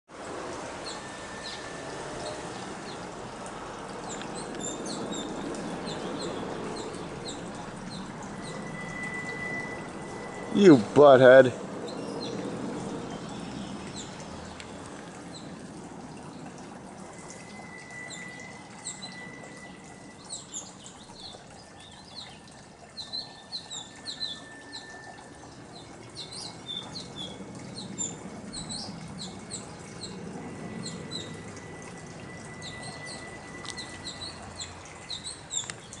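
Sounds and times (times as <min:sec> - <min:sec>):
small birds chirping: 0:04.0 - 0:15.6, 0:17.3 - 0:36.0.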